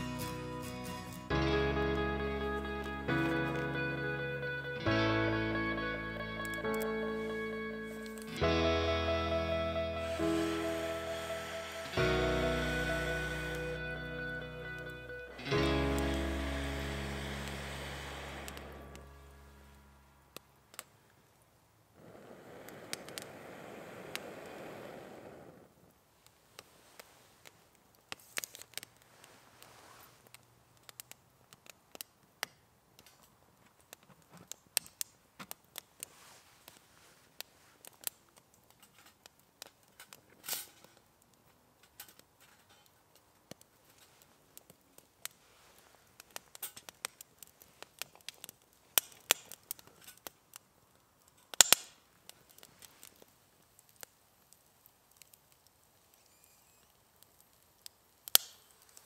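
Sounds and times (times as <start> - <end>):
wood fire crackling and popping: 0.0 - 59.0
steady rushing noise: 8.9 - 20.1.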